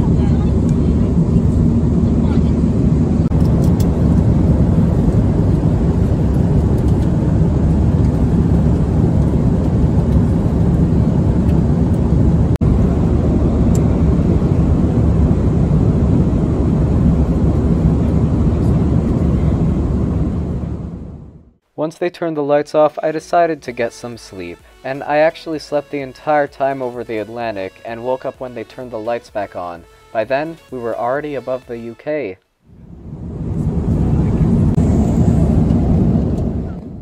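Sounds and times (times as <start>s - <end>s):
airliner cabin drone: 0.0s - 21.6s, 32.6s - 37.0s.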